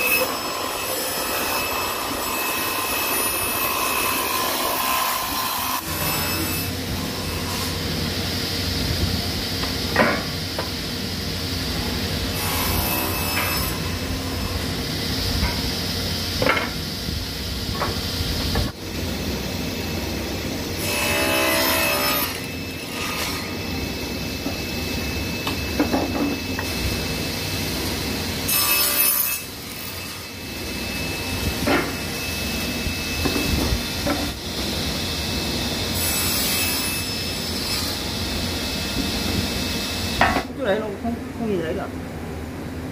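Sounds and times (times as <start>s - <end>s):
panel saw humming: 0.0s - 40.1s
saw cutting wood: 0.0s - 40.3s.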